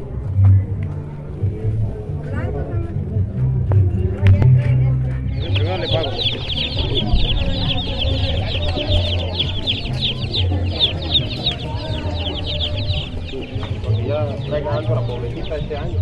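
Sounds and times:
baby chicks peeping: 5.2 - 16.0.

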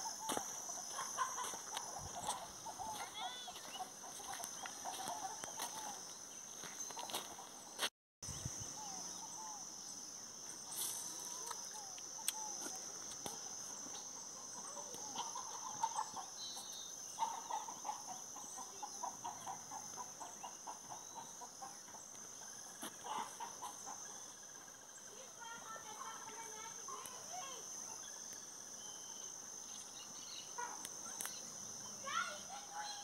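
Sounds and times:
high insect drone: 0.0 - 33.0
chickens clucking: 0.3 - 6.0, 14.6 - 16.3, 17.2 - 22.1, 22.8 - 24.1.

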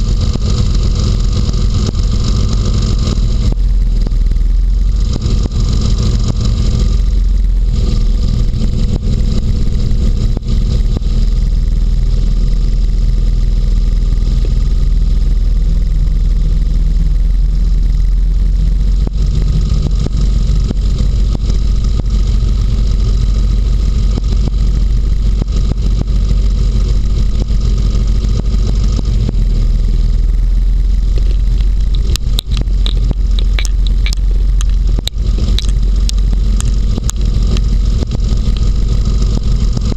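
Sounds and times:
hovercraft engine and fan drone: 0.0 - 39.9
sharp clicks and scrapes: 31.0 - 39.9.

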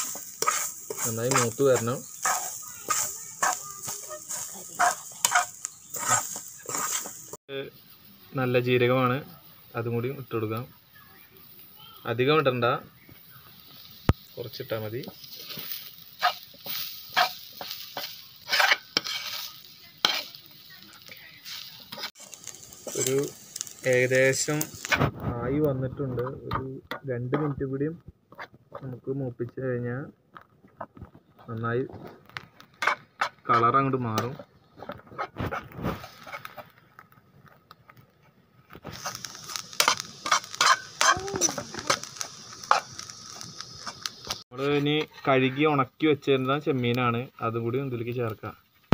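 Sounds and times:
metal spoon scraping a pan: 0.0 - 7.4, 15.1 - 25.1, 28.3 - 28.8, 32.7 - 36.7, 38.8 - 45.7.

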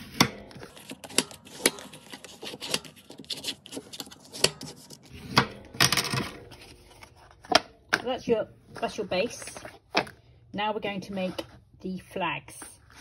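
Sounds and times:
paper rubbing and scraping: 0.0 - 5.4, 6.4 - 7.5, 12.8 - 13.0.

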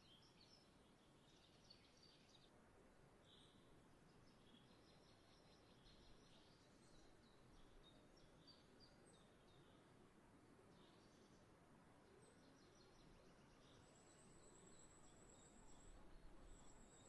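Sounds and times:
songbirds chirping: 3.2 - 9.9.

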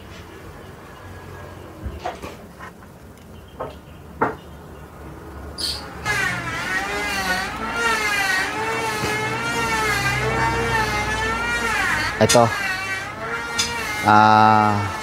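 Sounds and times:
wobbling droning hum: 5.8 - 15.0.

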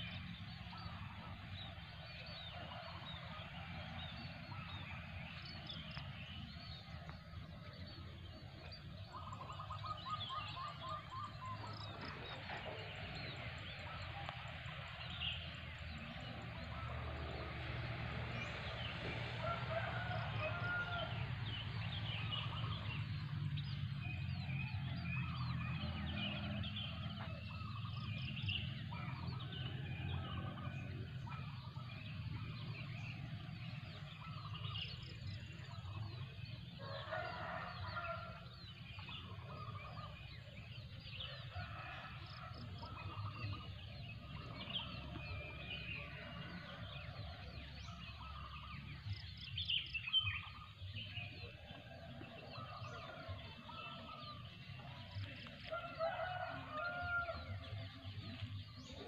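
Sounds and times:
rooster crowing: 19.3 - 21.6, 36.8 - 38.5, 41.2 - 48.6, 55.6 - 58.2.

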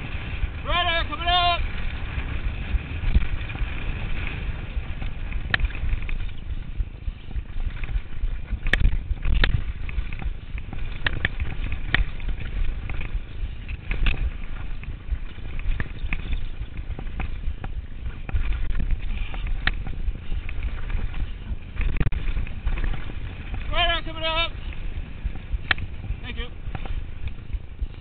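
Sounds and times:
wind rumble on microphone: 0.0 - 28.0
bike chain and frame clattering: 4.2 - 23.6.

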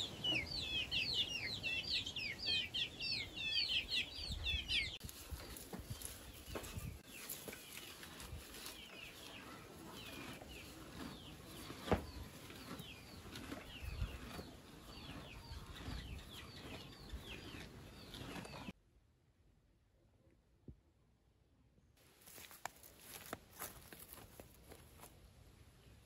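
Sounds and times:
chicks peeping: 0.0 - 18.7.

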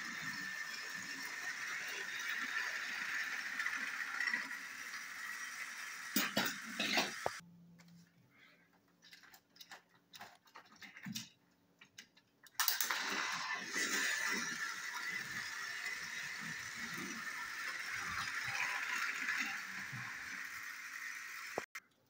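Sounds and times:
toy train engines rattling whir: 0.0 - 7.4, 12.5 - 21.8.

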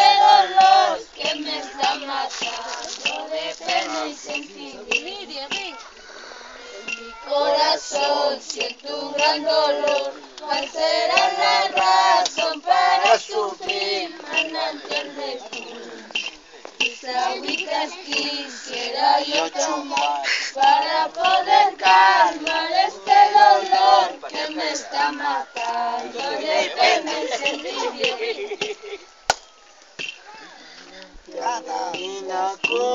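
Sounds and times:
women singing unaccompanied: 0.0 - 6.0, 6.8 - 28.6.

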